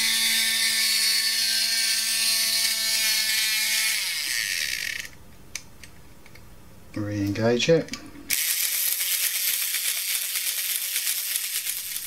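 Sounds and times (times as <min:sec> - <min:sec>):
small motor whirring: 0:00.0 - 0:05.2, 0:08.3 - 0:12.0.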